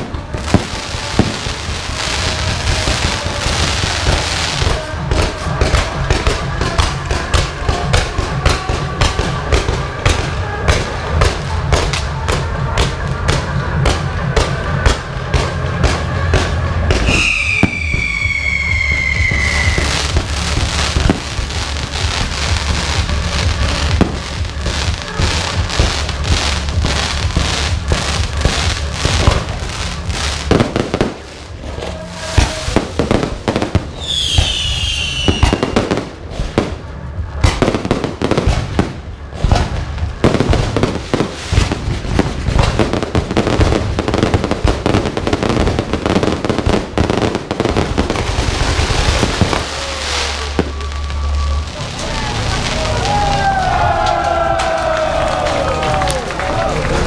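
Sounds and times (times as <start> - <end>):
fireworks bangs and crackling: 0.0 - 57.0
falling firework whistles: 17.0 - 21.2, 32.0 - 36.6.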